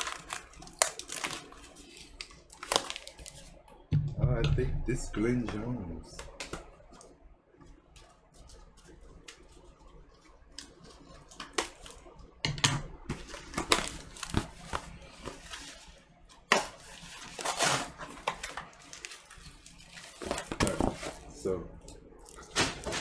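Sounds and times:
cardboard and paper rustling: 0:13.1 - 0:21.4, 0:22.4 - 0:23.0.

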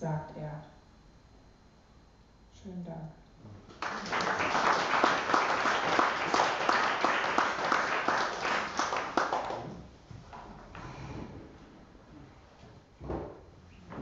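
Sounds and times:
audience applauding: 0:03.7 - 0:09.7.

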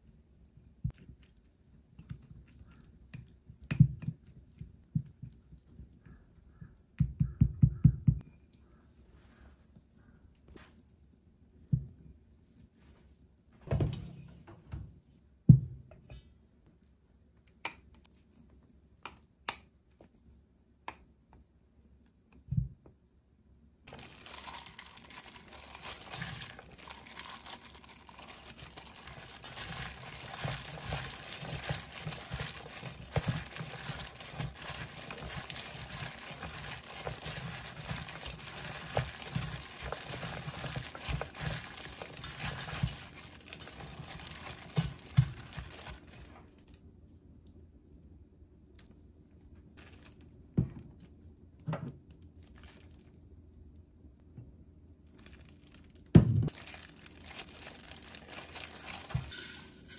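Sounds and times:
plastic glove crinkling: 0:23.9 - 0:46.8, 0:49.8 - 0:50.4, 0:52.3 - 0:53.2, 0:55.0 - 0:59.6.

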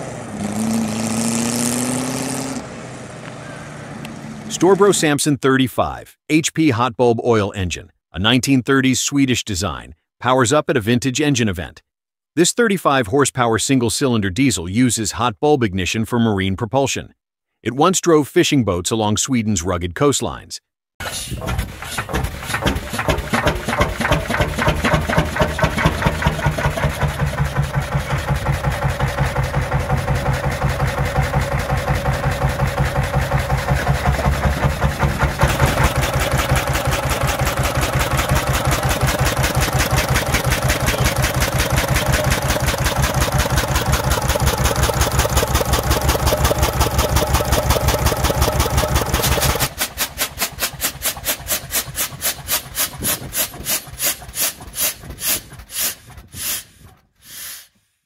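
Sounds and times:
oil engine running: 0:21.0 - 0:57.0.

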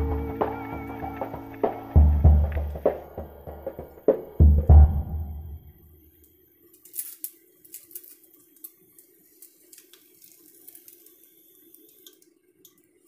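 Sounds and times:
omelette sizzling in a pan: 0:06.8 - 0:12.3.

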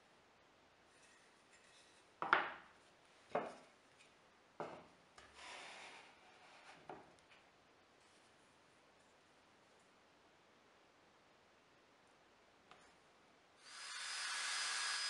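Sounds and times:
wooden pieces knocking on board: 0:02.2 - 0:02.6.

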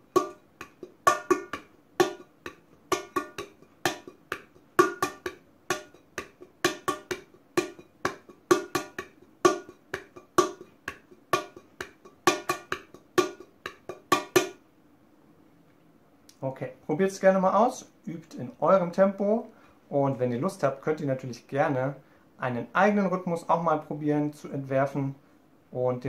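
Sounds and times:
hands drumming on metal pot: 0:00.0 - 0:14.6.

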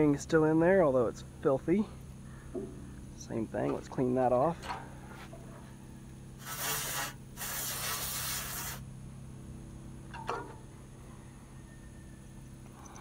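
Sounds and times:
aerosol spray hissing: 0:06.4 - 0:08.9.

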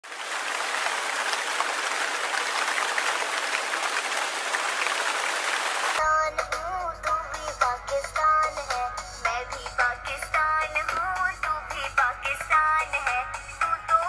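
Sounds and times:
crowd clapping: 0:00.0 - 0:06.0
music with singing: 0:06.0 - 0:14.0.

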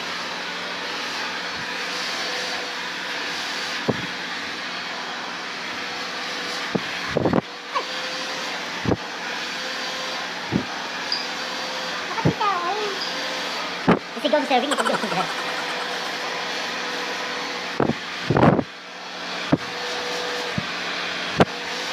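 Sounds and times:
hair dryer blowing: 0:00.0 - 0:12.4, 0:13.2 - 0:21.9.

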